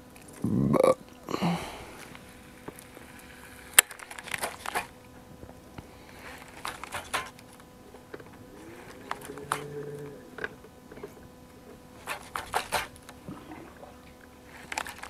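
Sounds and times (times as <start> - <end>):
faint steady hum: 0.0 - 15.0
fishing gear clicks and rustles: 1.9 - 15.0.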